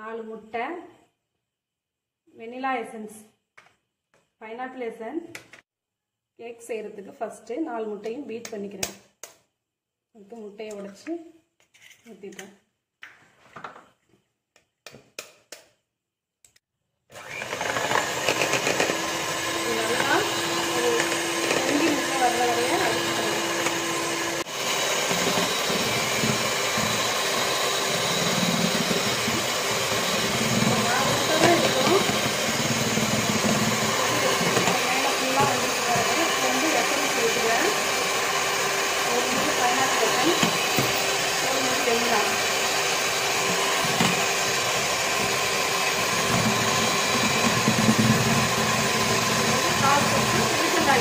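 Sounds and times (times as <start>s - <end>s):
electric hand mixer whipping eggs: 17.1s - 51.0s.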